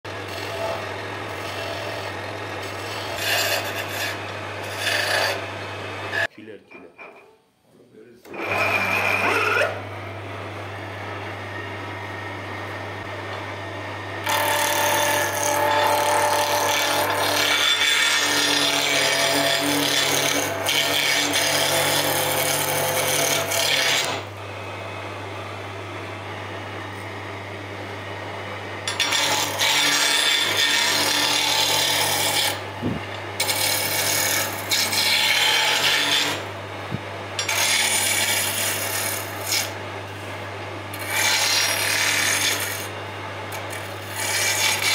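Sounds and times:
chisel scraping spinning wood: 0:00.1 - 0:06.3, 0:08.3 - 0:09.8, 0:14.2 - 0:24.3, 0:28.8 - 0:36.5, 0:37.4 - 0:40.3, 0:40.9 - 0:44.9
wood lathe motor hum: 0:00.1 - 0:06.3, 0:08.3 - 0:27.6, 0:28.6 - 0:36.6, 0:37.4 - 0:44.9.

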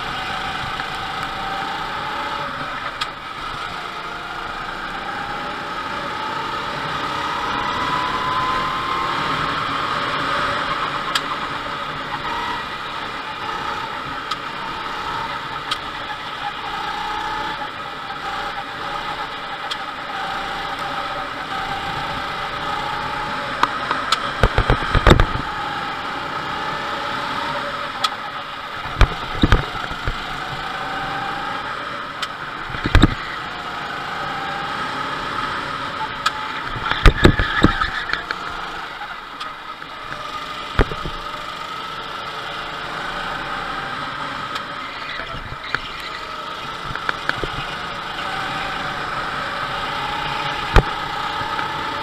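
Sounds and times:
go-kart engine: 0:00.0 - 0:52.0
loud thumps: 0:23.9 - 0:25.5, 0:28.8 - 0:30.2, 0:32.7 - 0:33.2, 0:36.8 - 0:38.2, 0:40.8 - 0:41.2, 0:50.6 - 0:51.0.

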